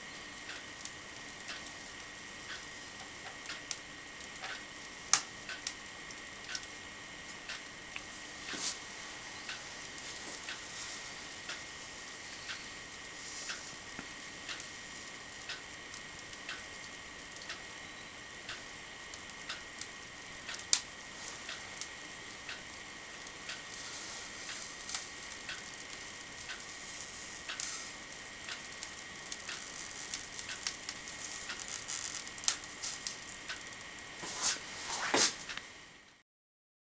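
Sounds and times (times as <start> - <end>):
hot wire crackling through foam: 0.0 - 35.8
scrape: 8.4 - 8.8, 34.2 - 35.4.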